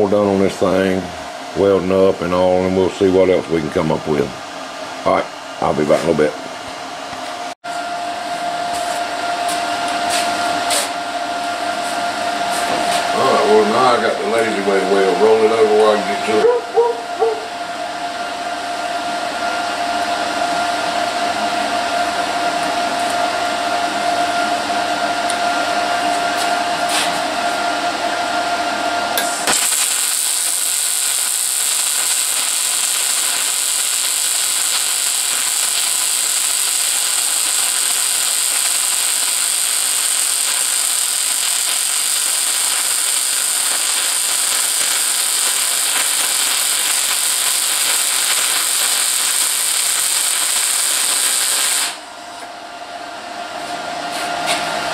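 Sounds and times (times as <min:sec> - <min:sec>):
machine hum with a whine: 0:00.0 - 0:54.9
welder arc hissing: 0:29.2 - 0:52.0.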